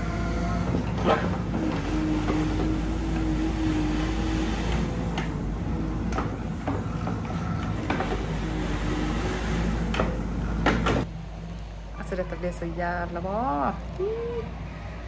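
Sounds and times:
diesel engine running: 0.0s - 11.1s
hydraulic whine: 0.0s - 11.1s.

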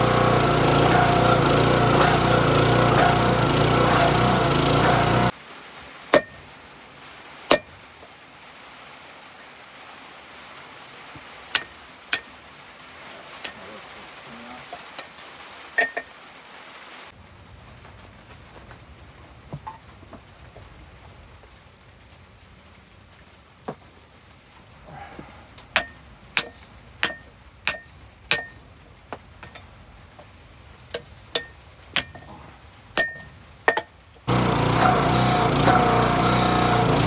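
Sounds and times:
small engine running: 0.0s - 5.3s, 34.3s - 37.0s
hammer clanging on anvil: 6.2s - 6.4s, 25.8s - 28.6s, 31.4s - 32.3s, 33.0s - 33.9s.

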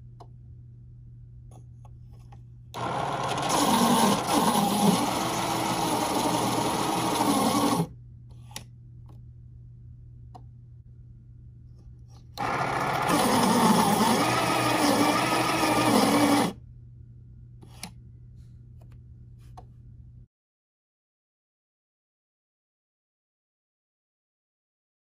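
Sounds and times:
electric pencil sharpener grinding: 2.8s - 7.9s, 12.4s - 16.6s.

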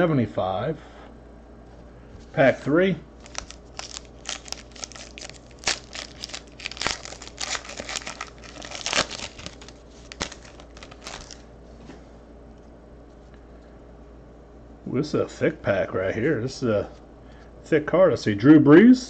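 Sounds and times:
foil wrapper tearing and crinkling: 3.2s - 11.4s.

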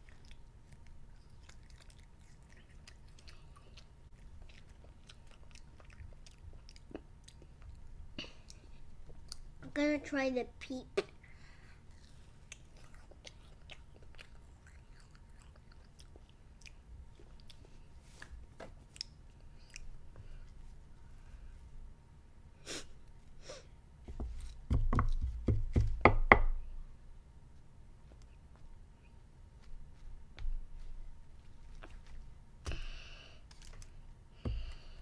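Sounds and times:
child chewing: 0.0s - 9.6s, 11.0s - 20.8s, 30.7s - 35.0s.

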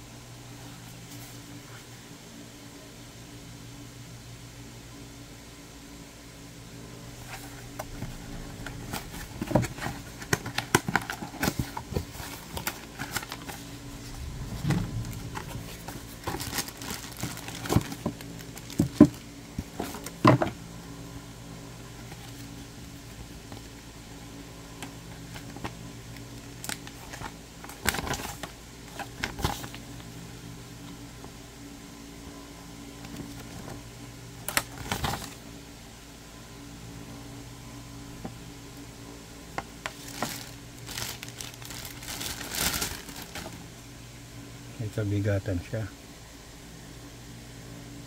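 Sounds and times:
steady low hum: 0.0s - 48.0s
paper rustling: 39.9s - 43.6s.

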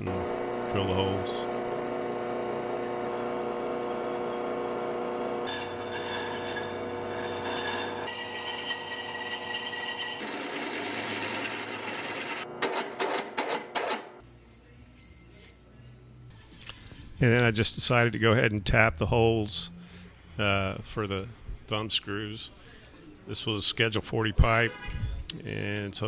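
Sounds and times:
drill press motor hum: 0.0s - 12.7s
drill bit squealing on metal: 5.5s - 12.4s.

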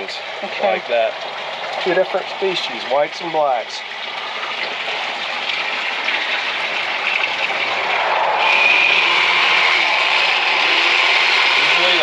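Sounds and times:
hose water pouring into bucket: 0.0s - 12.0s
electric knife humming: 8.0s - 12.0s.

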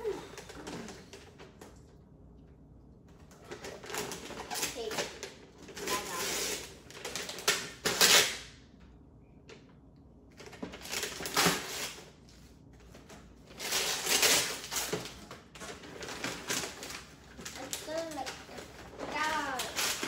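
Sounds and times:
wrapping paper tearing and crinkling: 3.5s - 8.5s, 10.4s - 12.2s, 13.0s - 20.0s.

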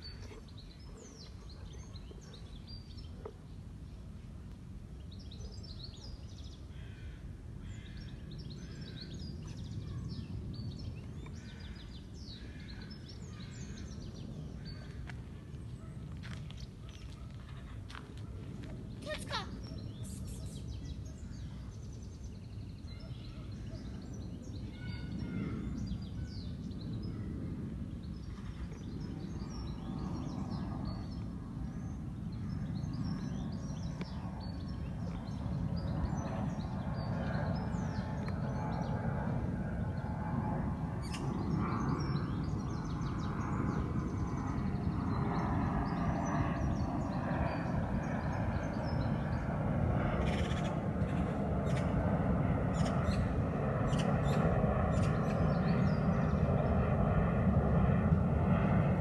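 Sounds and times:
birds chirping: 0.0s - 4.1s, 5.0s - 59.0s
steady low rumble: 24.0s - 59.0s.

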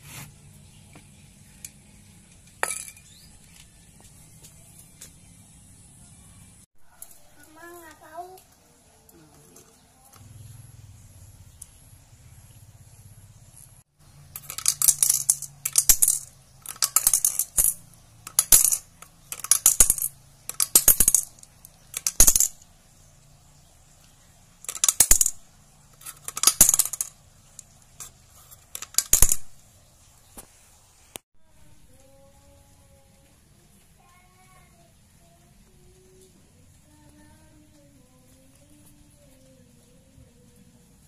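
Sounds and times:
pebbles clinking against glass: 2.5s - 3.4s, 14.2s - 22.6s, 24.6s - 25.4s, 26.0s - 29.6s.

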